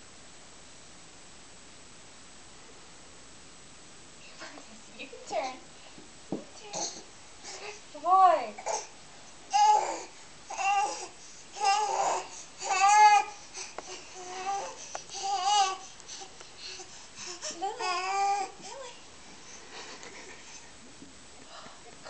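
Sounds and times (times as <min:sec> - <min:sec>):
baby babbling: 0:06.6 - 0:07.0, 0:08.6 - 0:08.9, 0:09.5 - 0:13.4, 0:14.1 - 0:15.9, 0:17.4 - 0:18.7.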